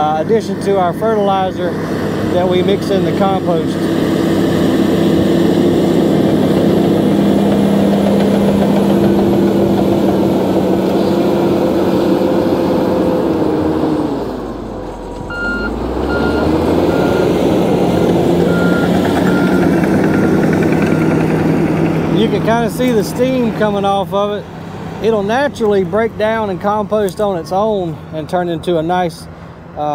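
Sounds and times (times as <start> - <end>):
bulldozer diesel engine running: 0.0 - 29.9
backup alarm beeping: 15.3 - 17.3, 18.5 - 20.4.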